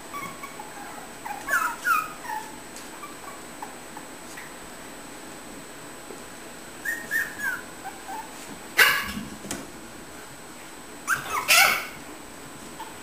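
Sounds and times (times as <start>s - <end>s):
puppies yipping: 0.0s - 4.1s, 6.8s - 9.1s, 11.0s - 12.0s
puppy barking: 6.9s - 9.2s, 11.1s - 12.0s.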